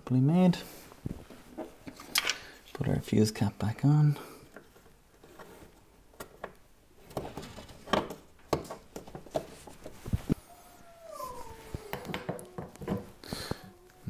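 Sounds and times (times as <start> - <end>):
rustling of hands handling wiring: 4.4 - 14.0
faint falling tone: 10.3 - 12.9.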